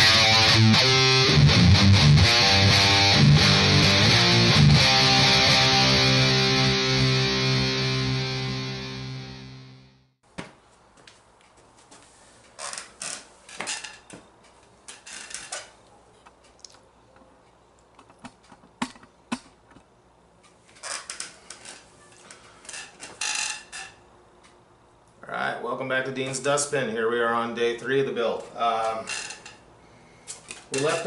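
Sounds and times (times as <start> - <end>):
handling clicks and rustling: 13.6 - 22.4.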